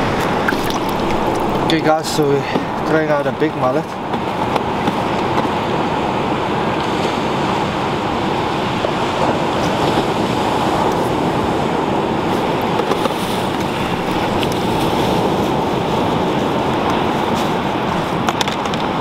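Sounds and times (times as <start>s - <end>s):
ocean surf washing ashore: 0.0s - 19.0s
wind on microphone: 0.0s - 19.0s.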